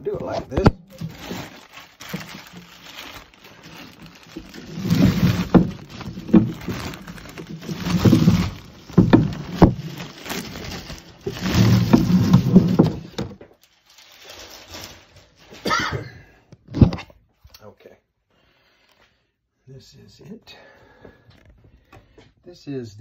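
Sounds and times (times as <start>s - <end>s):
plastic bag rustling and crinkling: 0.0s - 15.9s.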